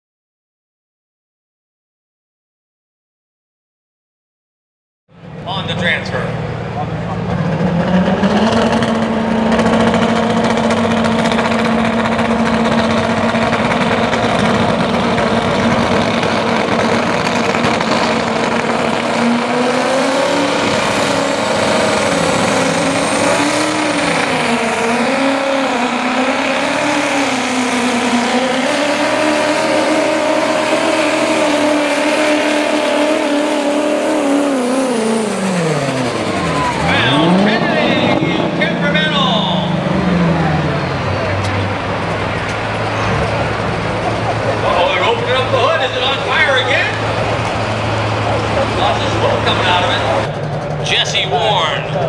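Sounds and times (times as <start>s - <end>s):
diesel pickup engine at full throttle: 5.1s - 52.0s.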